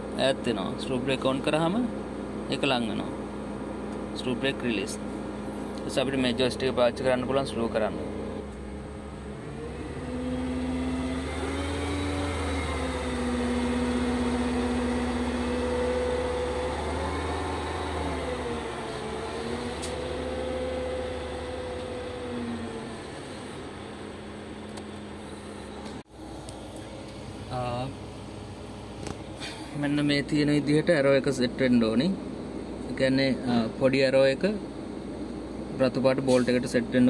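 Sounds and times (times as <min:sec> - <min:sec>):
crane engine and hydraulic hum: 0:00.0 - 0:33.7, 0:34.5 - 0:37.0
hydraulic whine: 0:03.4 - 0:30.0.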